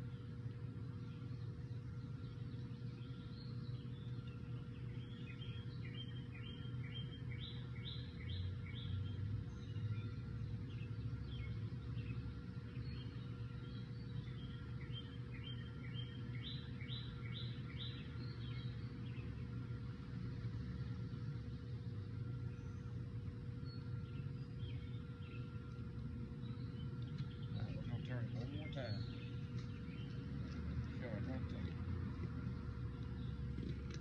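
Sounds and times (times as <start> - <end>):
faint hum: 0.0 - 34.0
songbird singing: 0.0 - 34.0.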